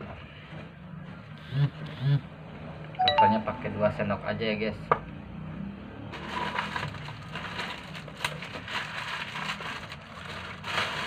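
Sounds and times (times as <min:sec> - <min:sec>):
crinkling and crackling: 0:06.2 - 0:11.0.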